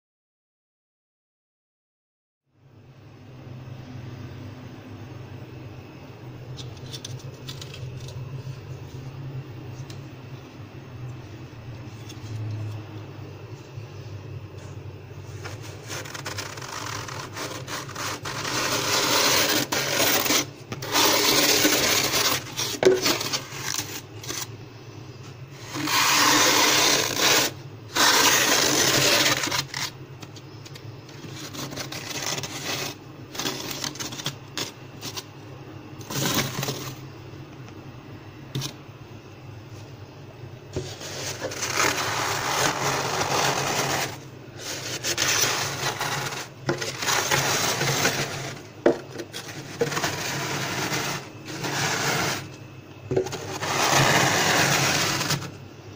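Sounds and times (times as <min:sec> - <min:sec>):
plastic ruler scraping frost: 0:06.6 - 0:08.2, 0:15.4 - 0:24.5, 0:25.6 - 0:30.0, 0:30.6 - 0:35.2, 0:36.0 - 0:37.0, 0:40.8 - 0:55.6
frost crunching: 0:15.4 - 0:24.5.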